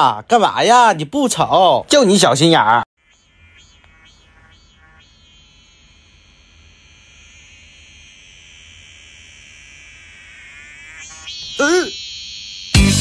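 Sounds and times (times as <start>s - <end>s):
high-pitched trilling: 3.0s - 13.0s.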